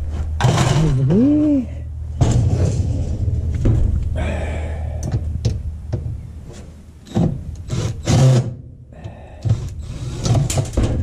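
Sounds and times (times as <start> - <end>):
dishwasher parts scraping and rattling: 0.4 - 1.0.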